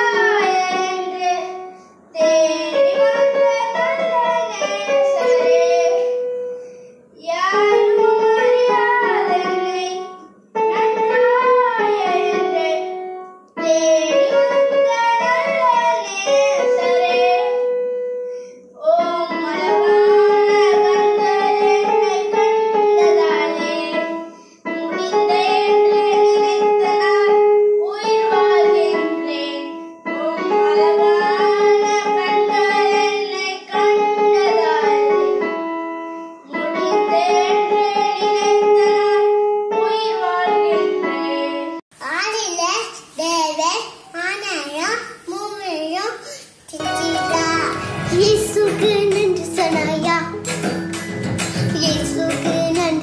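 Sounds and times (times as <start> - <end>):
boy singing: 0.0 - 1.6, 2.2 - 6.3, 7.2 - 13.0, 13.6 - 17.7, 18.8 - 24.2, 24.8 - 35.5, 36.5 - 41.8, 46.8 - 50.4, 51.6 - 53.0
electronic keyboard: 46.8 - 53.0.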